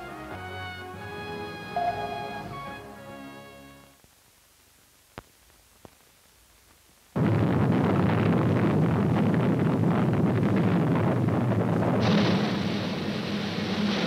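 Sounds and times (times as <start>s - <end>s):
music sting: 0.0s - 3.4s
rocket engine roar: 7.2s - 14.0s.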